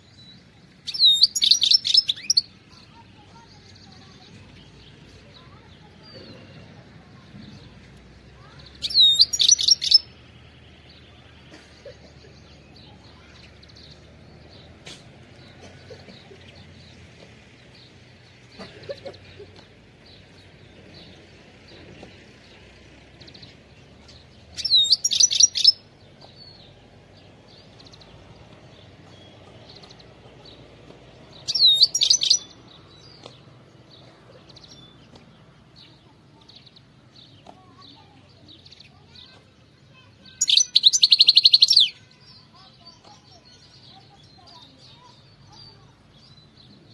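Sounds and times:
goldfinch twittering song: 0.0s - 6.0s, 8.4s - 11.2s, 20.0s - 46.9s
faint bird chirps: 8.4s - 10.2s, 31.4s - 33.3s, 36.0s - 46.9s.

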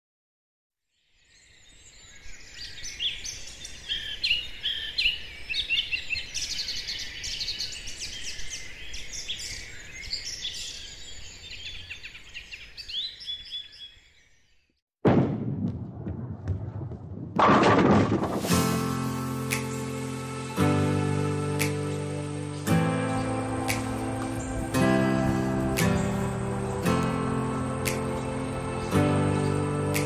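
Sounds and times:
small birds chirping and trilling: 0.9s - 14.8s.

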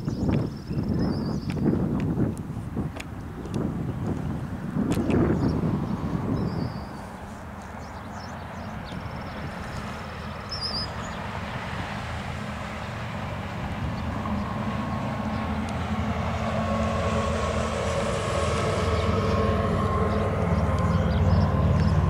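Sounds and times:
heavy low rumble: 12.9s - 22.0s
warning siren sounding: 14.5s - 22.0s.

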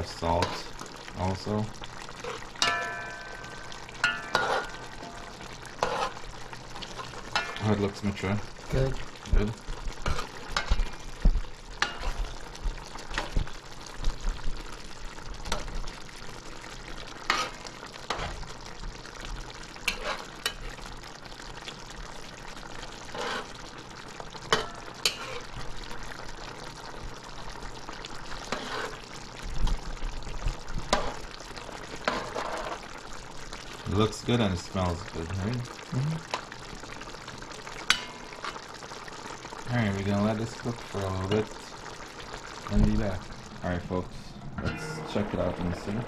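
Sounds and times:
curry simmering hiss: 0.0s - 46.0s
spoon clinking and scraping pot: 2.2s - 6.2s, 7.3s - 7.8s, 11.8s - 12.3s, 17.3s - 18.4s, 19.9s - 20.8s, 24.5s - 25.5s.

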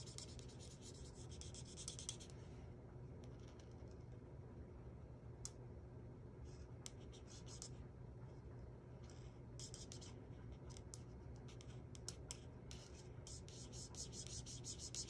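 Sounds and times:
marker scratching on paper: 0.0s - 2.3s, 6.5s - 7.8s, 9.2s - 15.0s.

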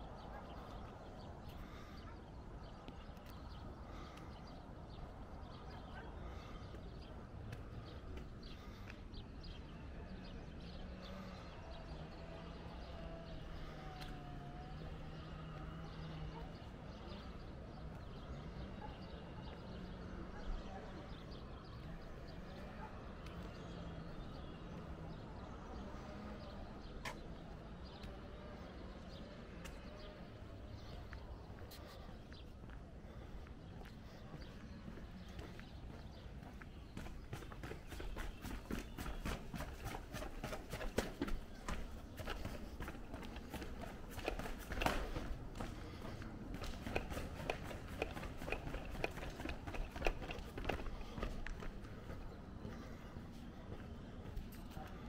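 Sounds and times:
small birds chirping: 0.0s - 55.0s.

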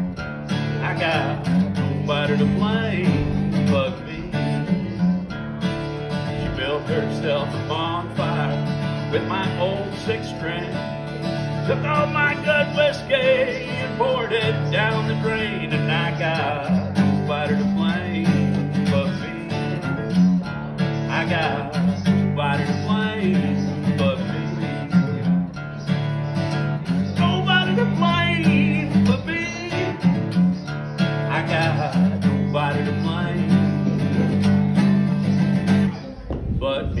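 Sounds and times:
acoustic guitar strumming: 0.0s - 37.0s.

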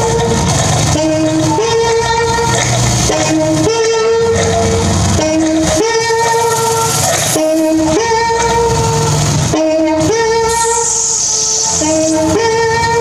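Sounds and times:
looped electronic two-note phrase: 0.0s - 13.0s
high hiss: 10.5s - 12.4s.

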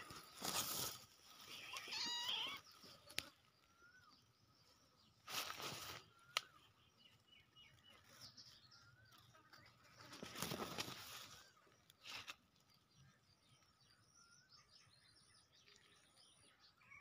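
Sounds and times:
rustling noise: 0.0s - 3.3s, 5.2s - 6.1s, 9.8s - 12.7s.

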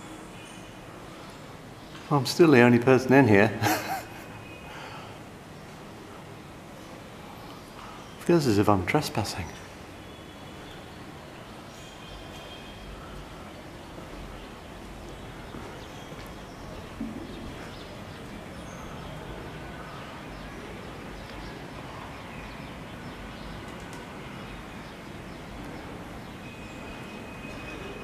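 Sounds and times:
background hiss: 0.0s - 28.0s
bird chirps: 9.4s - 23.6s.

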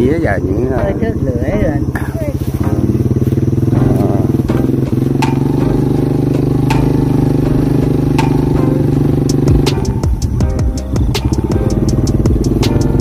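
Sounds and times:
small motorbike engine running: 0.0s - 13.0s
sharp clicks and rattles: 3.4s - 13.0s.

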